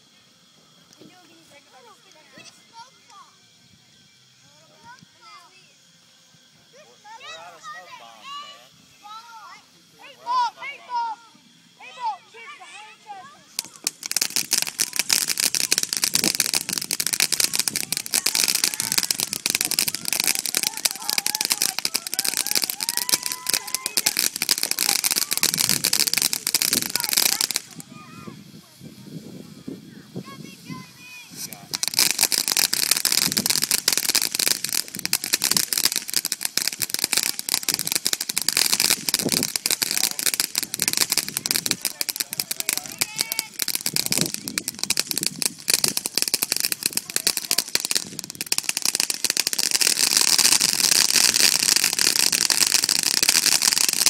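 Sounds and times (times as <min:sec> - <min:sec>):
ground firework crackling pops: 0:00.0 - 0:03.6, 0:13.3 - 0:29.0, 0:30.4 - 0:54.0.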